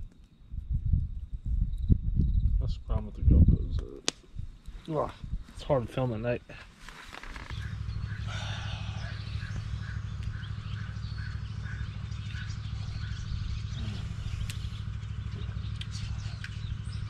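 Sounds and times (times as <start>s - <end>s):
steady low rumble: 0.0s - 17.0s
bird chirping: 7.2s - 17.0s.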